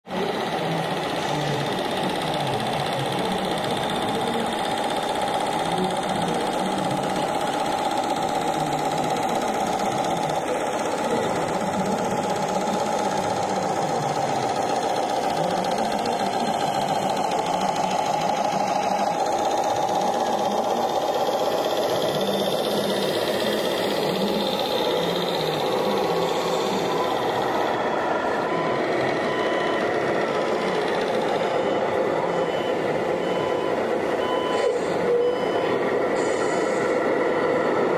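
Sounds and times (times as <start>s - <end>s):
model machinery whine: 0.1s - 37.9s.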